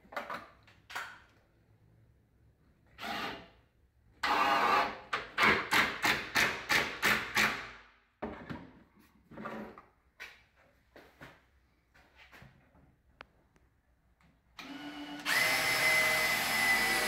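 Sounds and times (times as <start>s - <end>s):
cordless driver driving screw: 14.6s - 17.0s.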